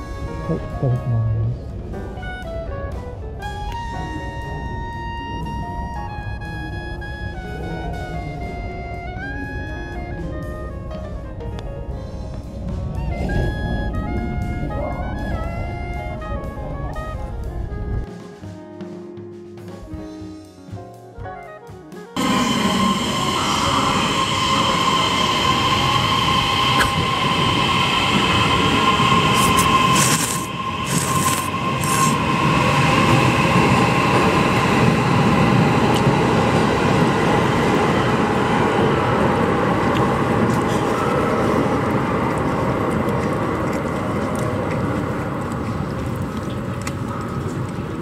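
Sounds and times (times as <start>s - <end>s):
high whine: 22.2s - 45.9s
train wheel noise: 22.2s - 48.0s.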